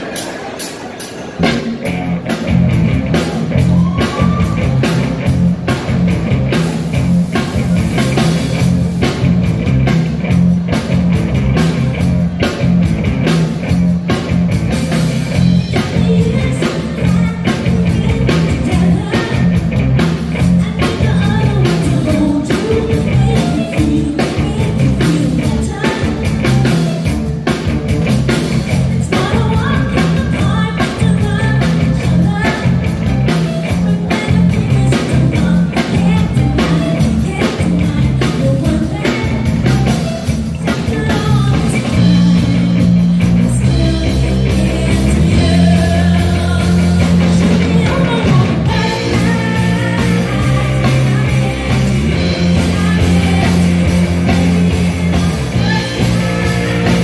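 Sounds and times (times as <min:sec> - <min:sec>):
drum kit beat: 0:00.0 - 0:57.0
rock band playing: 0:00.0 - 0:57.0
woman singing: 0:15.7 - 0:26.8, 0:28.9 - 0:57.0.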